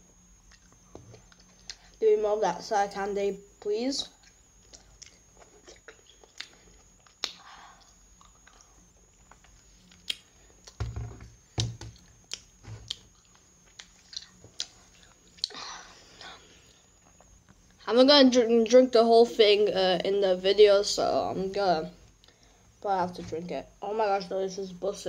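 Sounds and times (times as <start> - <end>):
child chewing candy: 0.5 - 2.0, 4.1 - 10.8, 12.0 - 17.4.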